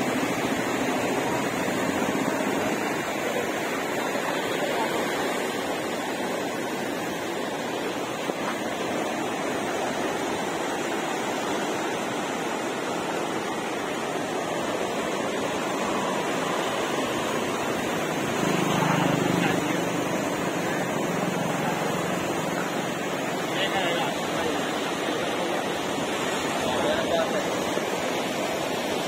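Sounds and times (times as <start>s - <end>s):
river water rushing: 0.0s - 29.0s.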